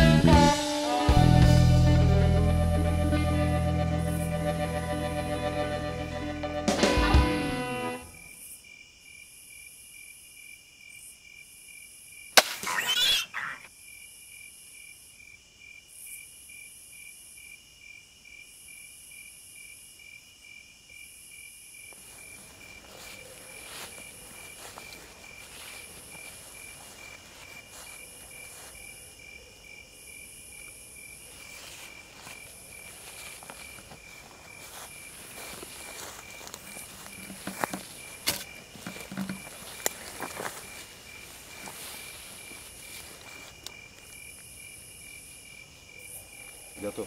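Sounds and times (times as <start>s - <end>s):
pulsing insect chirp: 8.0s - 47.0s
crossbow shot crack: 12.4s - 13.0s
faint rustling of movement: 22.0s - 29.0s, 31.2s - 44.1s.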